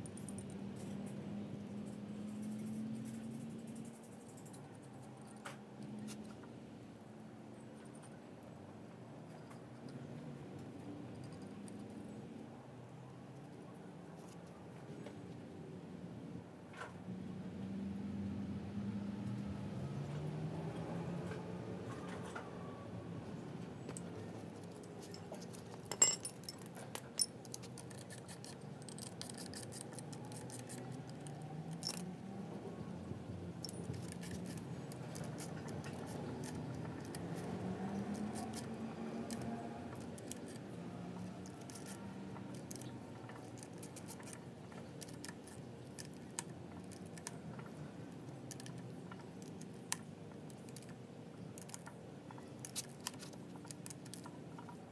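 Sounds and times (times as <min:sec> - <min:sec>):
metallic clicks and clinks: 0:23.9 - 0:32.1, 0:33.6 - 0:47.4.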